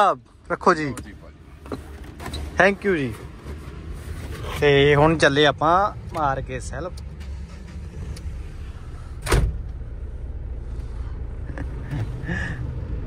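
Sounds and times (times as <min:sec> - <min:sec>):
vehicle engine running: 0:02.7 - 0:13.0
loud thump: 0:09.2 - 0:09.8.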